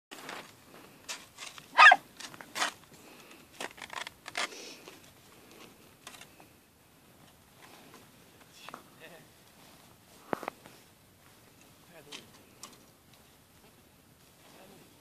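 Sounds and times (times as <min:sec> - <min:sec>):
dog barking: 0:01.8 - 0:02.0.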